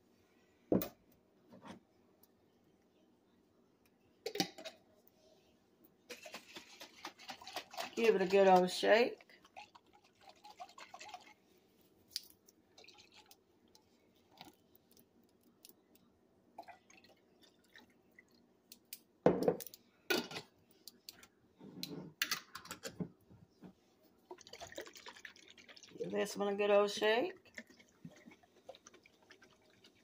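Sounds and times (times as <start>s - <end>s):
liquid pouring into a pot: 6.1s - 11.5s, 12.7s - 14.6s, 24.2s - 26.6s, 27.2s - 30.0s.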